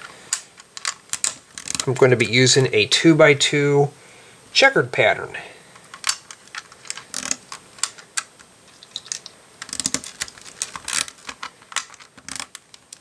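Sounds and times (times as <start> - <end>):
plastic tiles clicking: 0.3 - 2.0.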